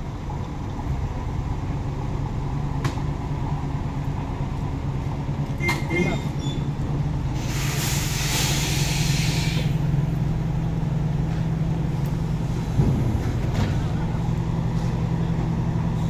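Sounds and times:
diesel engine idling: 0.0 - 16.0
air hiss: 7.4 - 9.8.

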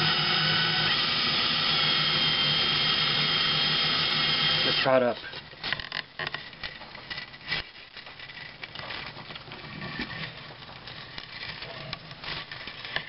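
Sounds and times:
wire winding onto wooden dowel: 0.0 - 4.9.

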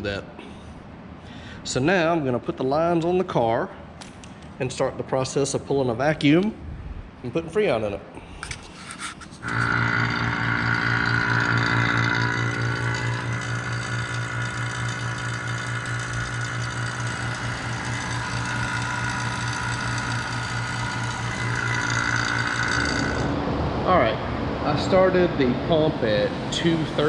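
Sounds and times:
vacuum pump humming: 8.4 - 25.0.

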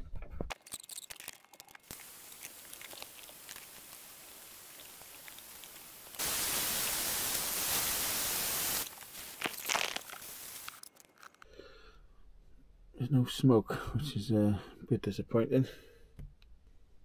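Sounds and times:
faint steady hiss: 1.9 - 11.0
branding iron hissing on wood: 3.3 - 10.9.

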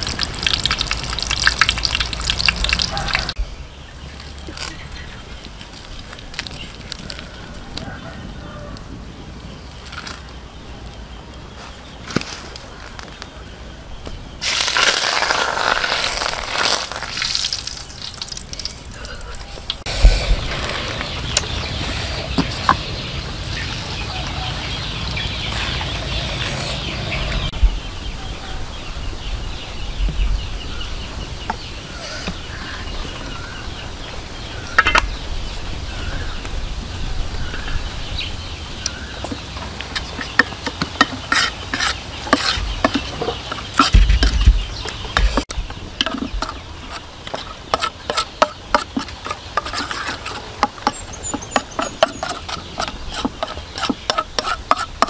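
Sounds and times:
chickens clucking: 38.8 - 55.0
spoon scraping an enamel plate: 40.0 - 44.4, 46.0 - 55.0.

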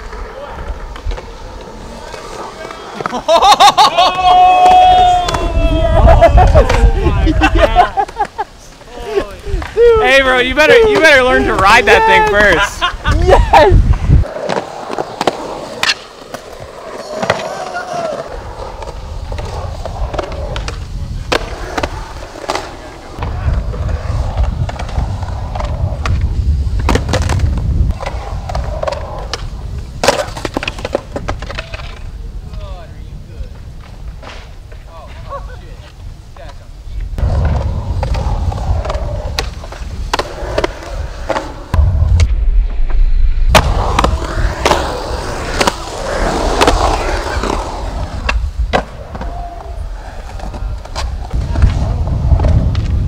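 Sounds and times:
skateboard wheels rolling on concrete: 0.0 - 53.0
skateboard clacks: 13.9 - 32.6.

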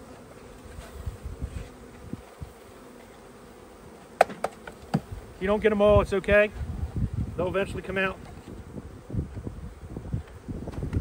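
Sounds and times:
honeybees buzzing: 0.0 - 11.0
knocks on wooden box: 4.2 - 5.1.

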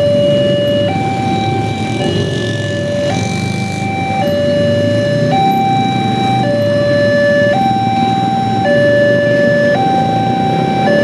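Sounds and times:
motorbike traffic idling: 0.0 - 11.0
two-tone level crossing alarm: 0.0 - 11.0.

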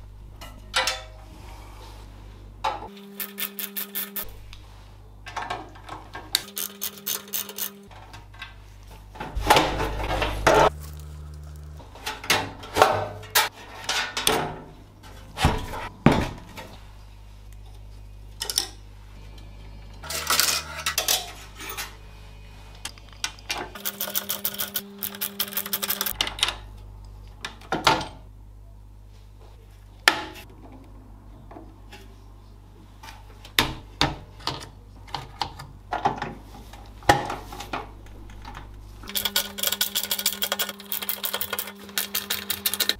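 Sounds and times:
screwdriver turning screws: 3.2 - 4.3, 6.4 - 7.8, 23.8 - 26.2, 39.1 - 42.9
metal parts clicking and clinking: 6.4 - 8.4, 20.0 - 22.0, 23.8 - 26.6, 38.0 - 42.9.

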